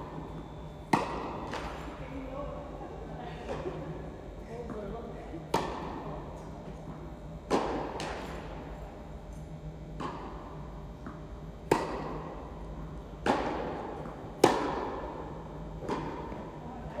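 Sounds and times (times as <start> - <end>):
tennis ball struck by rackets: 0.9 - 1.8, 5.5 - 6.0, 7.5 - 8.4, 11.0 - 12.3, 13.2 - 15.2.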